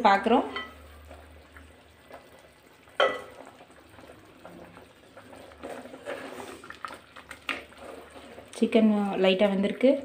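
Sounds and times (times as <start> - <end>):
thick gravy sloshing and bubbling: 0.9 - 10.0.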